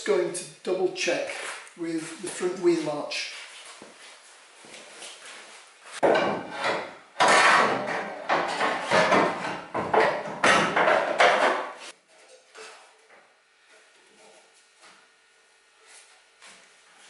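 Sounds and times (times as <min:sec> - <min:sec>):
metal panel knocking and scraping: 0:06.0 - 0:11.7.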